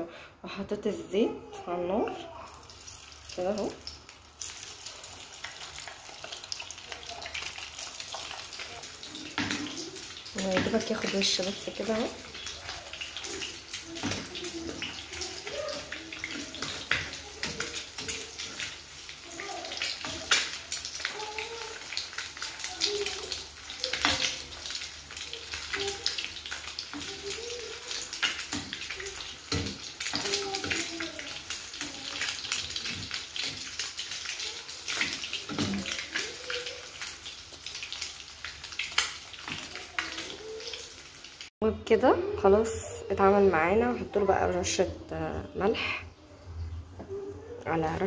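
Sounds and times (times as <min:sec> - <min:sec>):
food frying in hot oil: 0:01.8 - 0:41.6.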